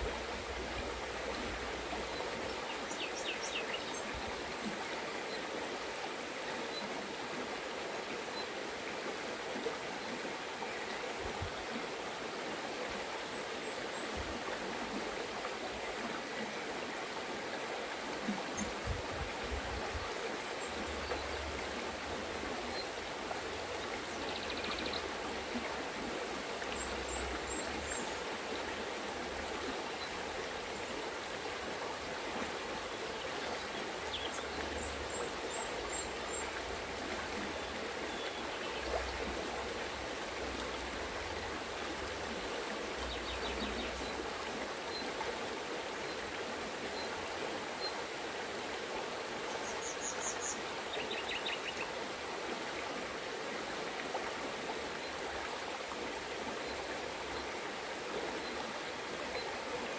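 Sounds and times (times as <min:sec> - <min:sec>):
river babbling over stones: 0:00.0 - 0:59.9.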